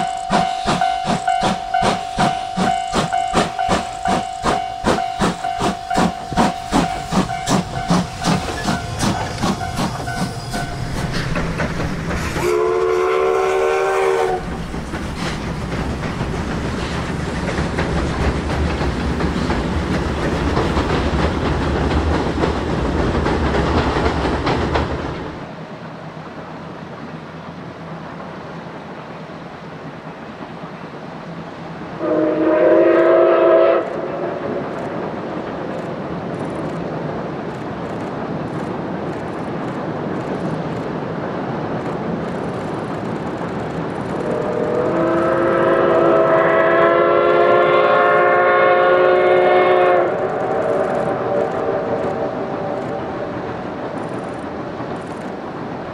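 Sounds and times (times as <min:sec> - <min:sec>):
steam locomotive chuffing: 0:00.0 - 0:25.6, 0:26.3 - 0:55.9
train rumble and steam rush: 0:00.0 - 0:55.9
steam whistle blast: 0:12.4 - 0:14.4, 0:32.0 - 0:34.4, 0:44.2 - 0:53.3.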